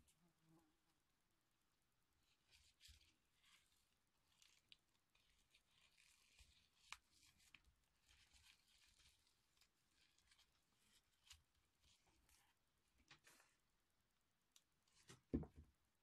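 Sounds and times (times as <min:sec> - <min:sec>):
ribbon rustling: 0:02.2 - 0:13.6.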